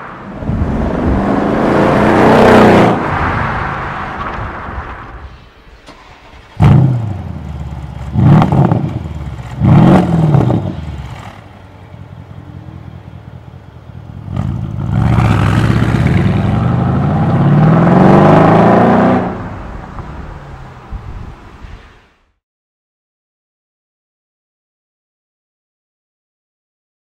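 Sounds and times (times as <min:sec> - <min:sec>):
car engine revving and accelerating: 0:00.2 - 0:04.2, 0:05.9 - 0:11.4, 0:14.2 - 0:19.6.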